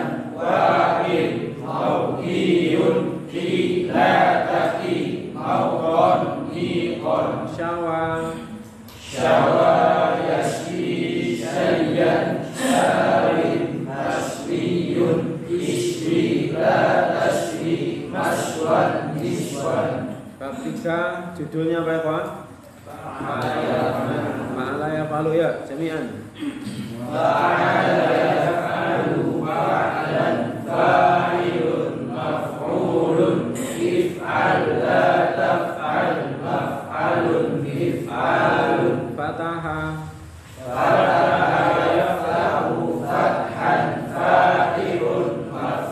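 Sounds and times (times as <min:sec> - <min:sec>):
group of voices chanting in unison: 0:00.0 - 0:07.6, 0:08.3 - 0:20.2, 0:22.9 - 0:24.6, 0:26.7 - 0:39.2, 0:40.5 - 0:45.9.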